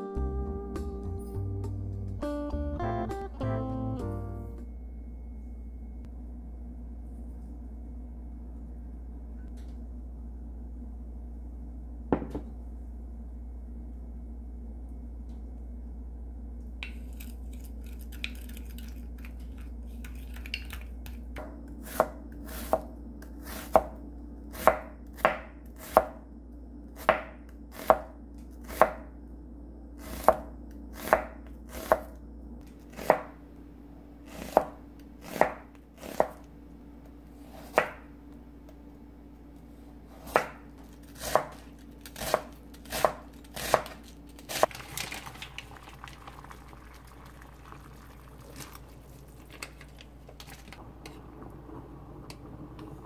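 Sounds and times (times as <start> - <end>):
knife knocking on cutting board: 12.1 - 12.5
knife slicing vegetables: 21.8 - 26.2, 30.0 - 32.1, 34.2 - 36.4, 40.1 - 44.7.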